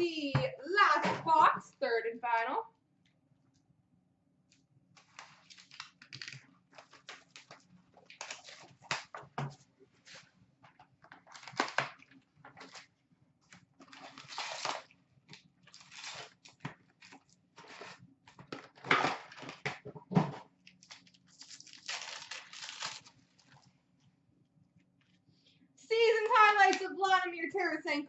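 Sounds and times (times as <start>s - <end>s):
card pack wrappers crinkling and tearing: 5.0s - 9.1s, 11.1s - 12.9s, 13.6s - 19.8s, 20.7s - 23.7s.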